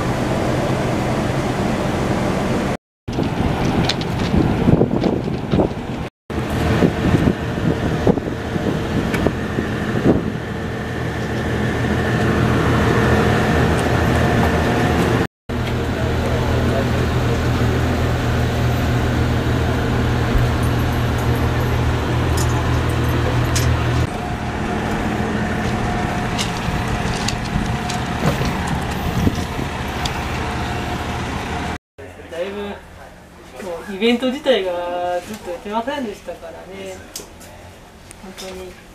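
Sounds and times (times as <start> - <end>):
locomotive engine idling: 5.5 - 31.8
higher hum: 5.8 - 33.4.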